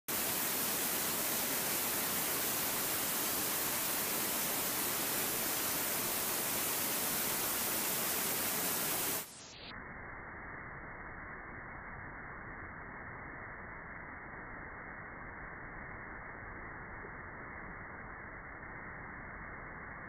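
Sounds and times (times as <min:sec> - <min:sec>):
waterfall splashing into pool: 0:00.1 - 0:09.4.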